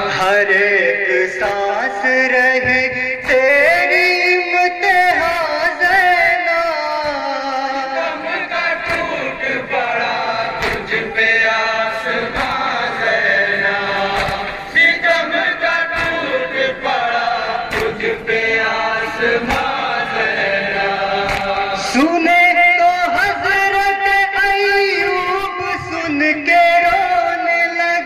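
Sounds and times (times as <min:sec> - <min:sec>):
men chanting in unison: 0:00.0 - 0:28.0
hands slapping on chests: 0:07.0 - 0:07.3, 0:08.2 - 0:22.0.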